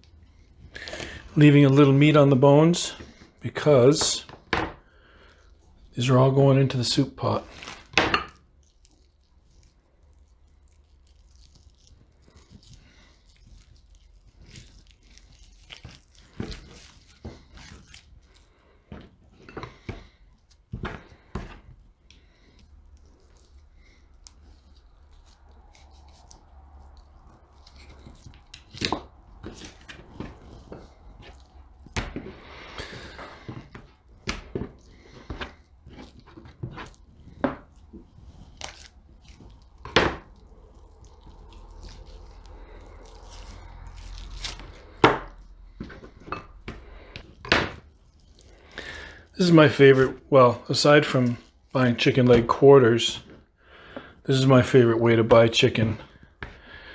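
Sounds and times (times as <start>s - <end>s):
wet tearing of meat: 4.8s - 52.4s
knife scraping cutting board: 27.6s - 47.8s.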